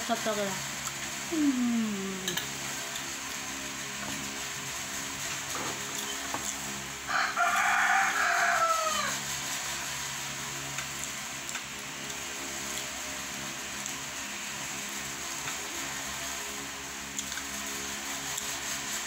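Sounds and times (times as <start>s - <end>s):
rooster crowing: 7.1s - 9.3s.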